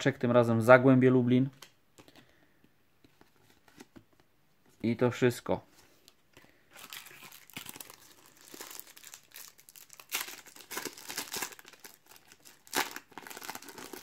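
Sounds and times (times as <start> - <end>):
foil wrapper crinkling: 6.8 - 14.0.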